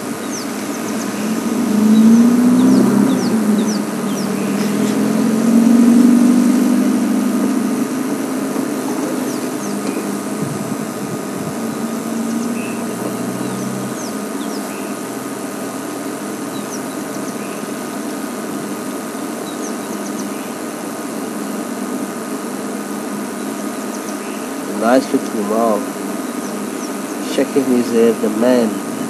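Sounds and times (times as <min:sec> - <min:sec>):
vehicle engine idling: 0:00.0 - 0:29.0
faint high bird chirps: 0:11.7 - 0:15.0.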